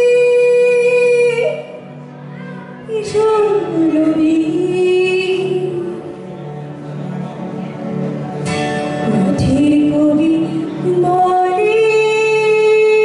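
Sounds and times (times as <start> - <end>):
woman singing into microphone: 0.0 - 6.3, 9.0 - 13.0
instrumental backing music: 0.0 - 13.0.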